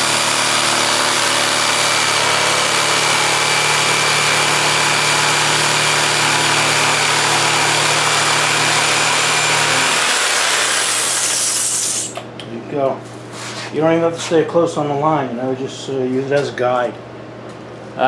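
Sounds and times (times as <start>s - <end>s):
jigsaw cutting wood: 0.0s - 12.2s.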